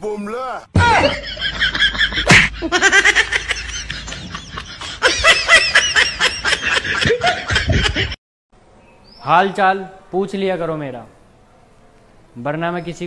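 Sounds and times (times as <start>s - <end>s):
high-pitched laughing: 0.9s - 8.2s.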